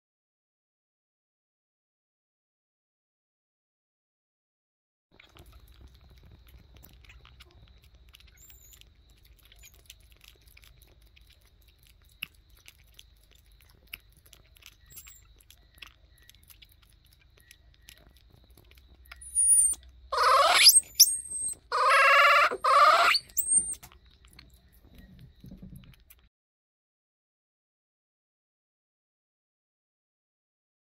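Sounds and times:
baby monkey sucking on bottle: 5.2s - 26.3s
monkey high-pitched squeals: 8.2s - 8.8s, 19.2s - 23.9s.

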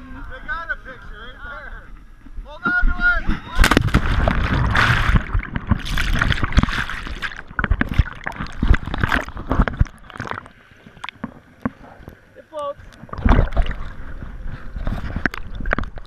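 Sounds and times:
person splashing into water: 3.6s - 11.2s, 13.2s - 13.9s
underwater churning and bubbling: 3.6s - 16.0s.

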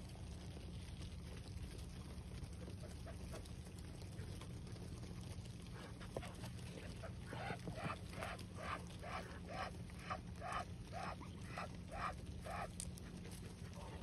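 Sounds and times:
ducks calling: 6.9s - 12.8s.

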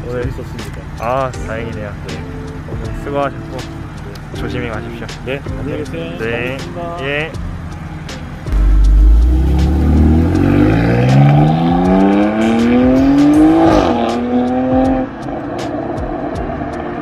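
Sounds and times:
car accelerating hard: 8.6s - 16.9s.

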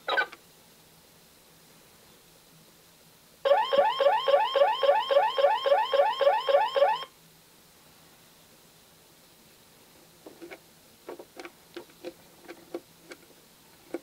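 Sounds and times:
toy car alarm whoops: 3.5s - 7.1s.

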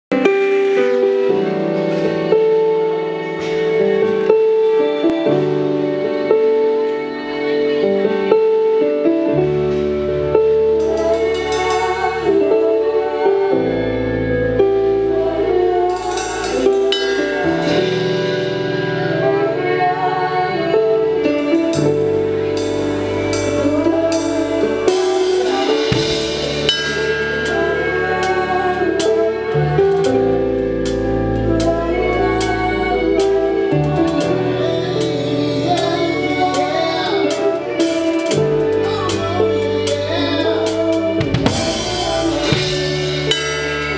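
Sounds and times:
live band playing slow song: 0.1s - 43.9s
drum kit with cymbal crashes: 10.5s - 12.5s, 15.9s - 19.2s, 21.7s - 34.4s, 35.0s - 43.9s
people singing: 10.7s - 22.0s, 23.4s - 43.9s.

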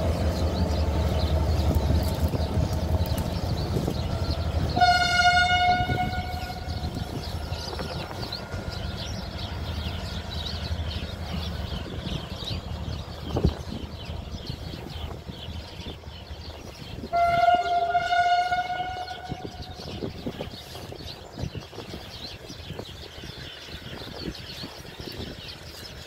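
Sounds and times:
birds chirping: 0.0s - 26.0s
locomotive low rumble: 0.0s - 26.0s
locomotive horn blast: 4.7s - 6.9s, 17.1s - 20.0s.

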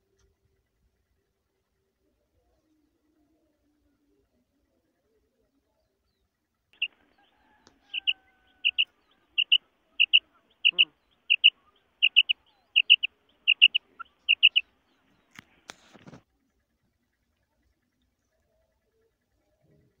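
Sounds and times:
quail calling: 6.8s - 15.9s.

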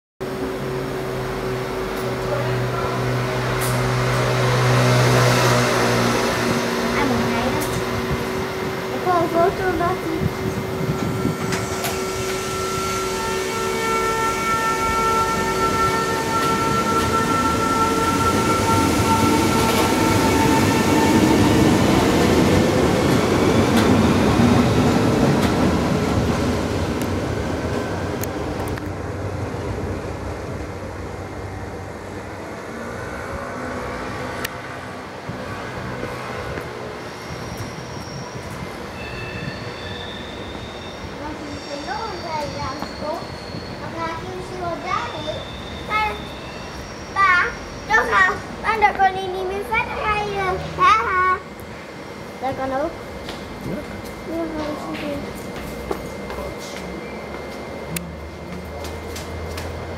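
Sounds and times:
train wheels rumbling on rail: 0.2s - 59.9s.

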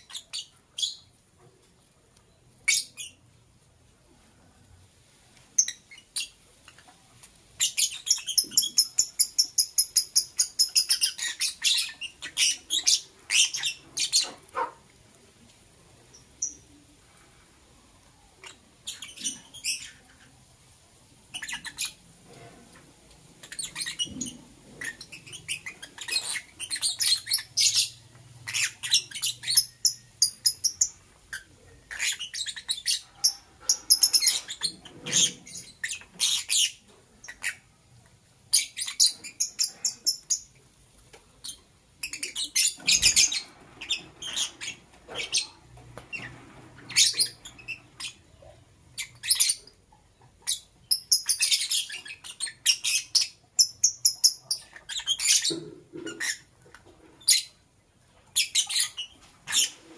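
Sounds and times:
lovebird chirping: 0.0s - 1.1s, 2.3s - 3.3s, 5.6s - 6.8s, 7.6s - 14.7s, 16.1s - 16.8s, 18.4s - 20.4s, 21.3s - 22.0s, 23.4s - 37.7s, 38.5s - 40.5s, 41.4s - 56.5s.

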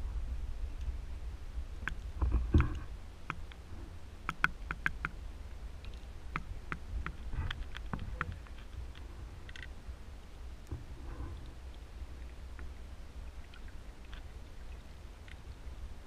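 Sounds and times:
muffled underwater rumble: 0.0s - 3.0s, 6.0s - 16.0s
sharp clicks: 4.3s - 5.2s.

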